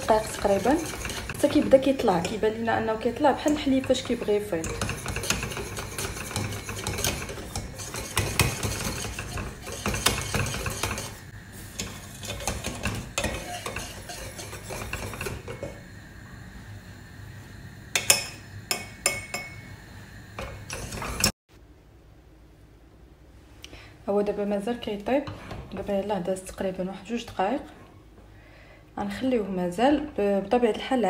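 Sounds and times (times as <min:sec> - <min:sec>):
wire whisk scraping a steel pan: 0:00.0 - 0:02.5, 0:03.2 - 0:15.8, 0:20.4 - 0:21.3
whisk tapping pan: 0:00.0 - 0:15.8, 0:20.4 - 0:21.3.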